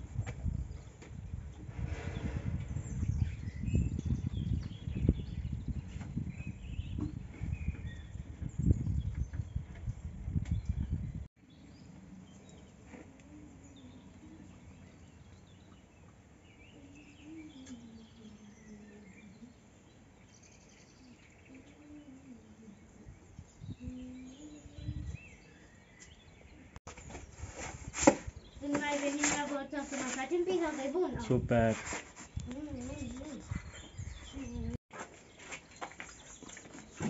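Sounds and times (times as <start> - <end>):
faint bird chirps: 10.6 - 27.2, 32.4 - 34.8.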